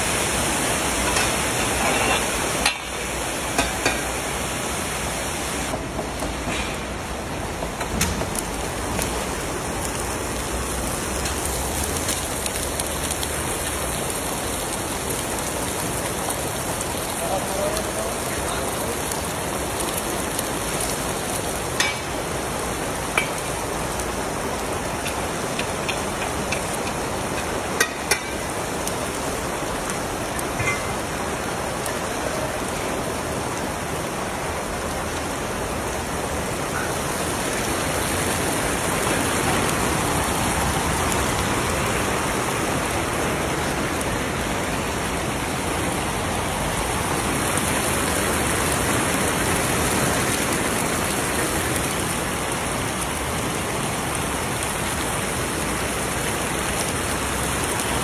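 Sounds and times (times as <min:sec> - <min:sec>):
carrots sizzling in oil: 0:00.0 - 0:04.9, 0:20.6 - 0:29.0.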